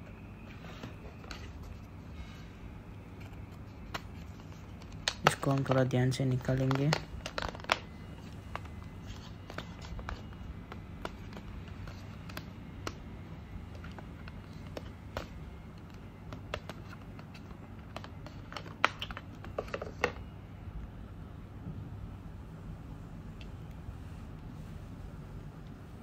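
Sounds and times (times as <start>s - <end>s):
low steady hum: 0.0s - 26.0s
clicks and scratches of packaging: 0.1s - 2.4s, 3.1s - 20.3s.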